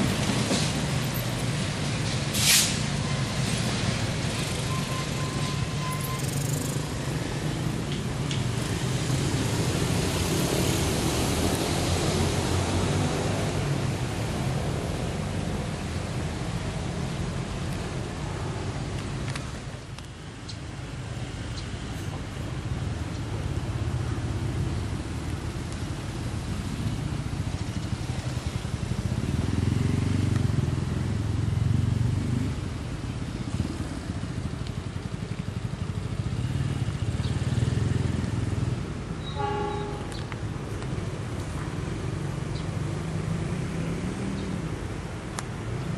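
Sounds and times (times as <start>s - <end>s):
road traffic rumble: 0.0s - 45.9s
short horn beep: 39.2s - 40.2s.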